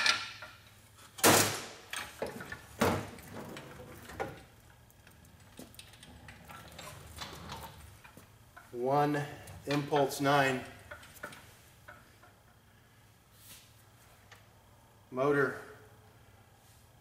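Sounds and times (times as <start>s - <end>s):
knocks and rattles: 1.2s - 8.7s, 9.4s - 12.4s.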